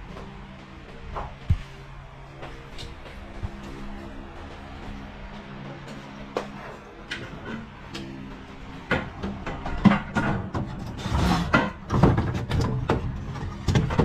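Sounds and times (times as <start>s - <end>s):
faint background music: 0.0s - 14.0s
wooden knocks and clattering: 8.8s - 14.0s.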